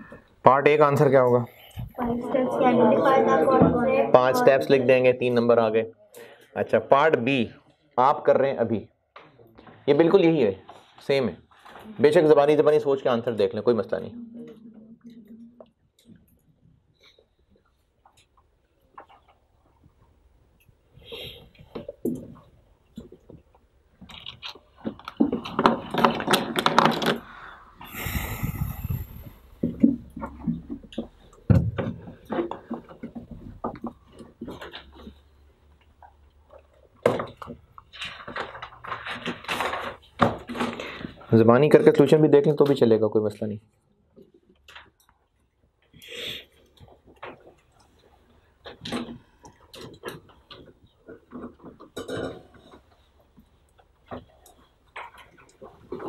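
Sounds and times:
short breathy hiss: 27.3s - 29.6s, 46.0s - 46.5s.

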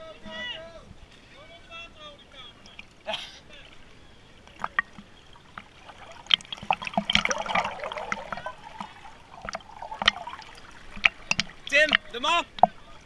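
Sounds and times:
river water splashing: 2.5s - 13.0s
sharp splashes and knocks: 4.6s - 12.9s.

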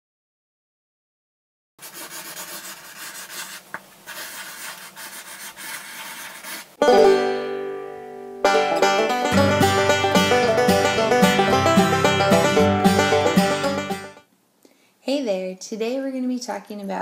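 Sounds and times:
marker scratching on paper: 1.8s - 6.8s
lively plucked-string music: 6.8s - 14.2s
plucked string chord: 6.8s - 14.2s.

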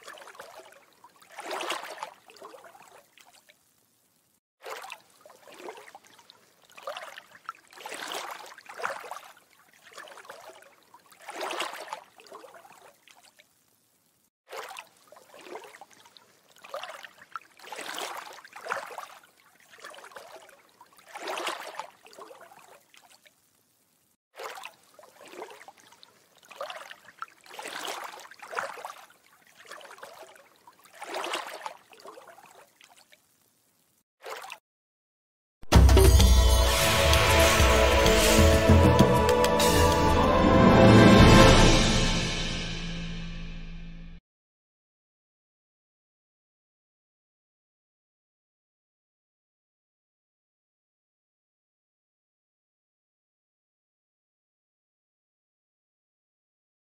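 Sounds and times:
water swells: 0.0s - 34.6s.

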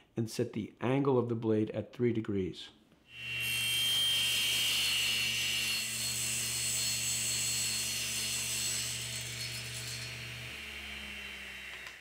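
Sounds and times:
table saw cutting wood: 3.1s - 12.0s.

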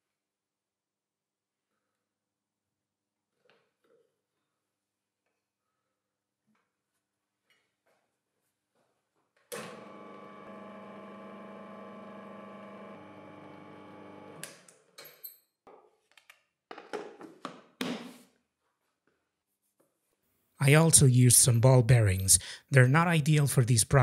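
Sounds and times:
electric motor humming: 9.7s - 14.4s.

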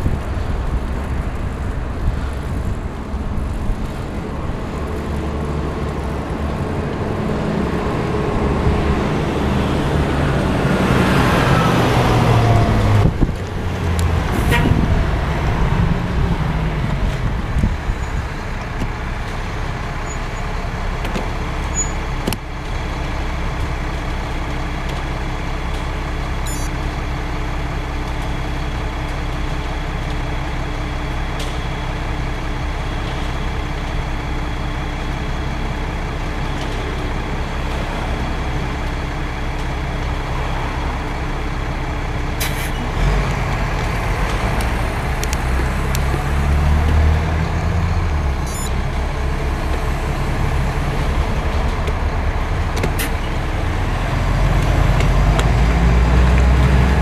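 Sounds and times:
cement mixer truck engine passing: 27.0s - 57.0s.

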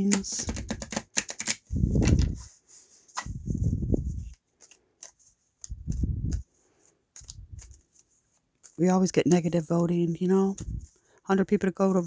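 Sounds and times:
cards riffle shuffling: 0.0s - 3.4s, 4.1s - 9.6s
deck bumping and rubbing: 0.1s - 2.4s.

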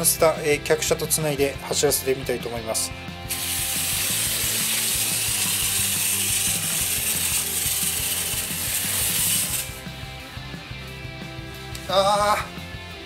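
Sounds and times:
quiet background music: 0.0s - 13.0s
clockwork toy train gears whirring: 3.3s - 9.8s.

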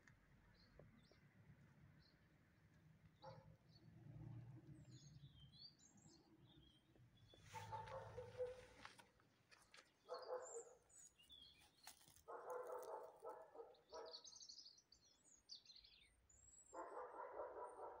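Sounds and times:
songbird chirps and trills: 0.0s - 17.5s
dog barking: 3.2s - 3.6s, 7.5s - 9.0s, 10.0s - 11.0s, 12.2s - 14.3s, 16.7s - 18.0s.

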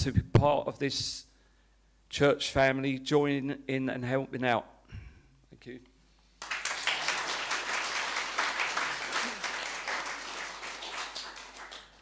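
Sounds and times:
congregation applauding: 6.4s - 12.0s.

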